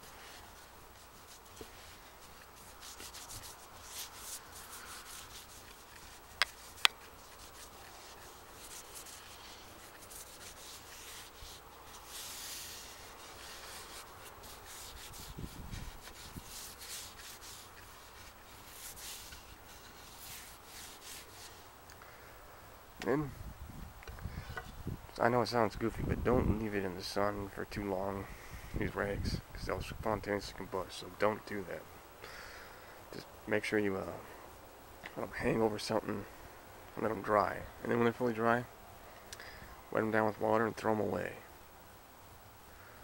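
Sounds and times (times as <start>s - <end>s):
cloth rubbing on wood: 0.0s - 21.7s.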